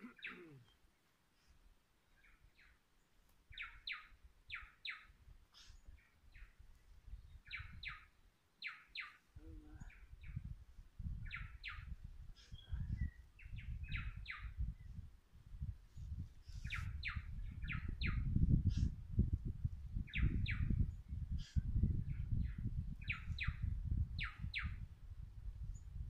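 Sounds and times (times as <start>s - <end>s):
low gusty rumble: 9.4s - 26.0s.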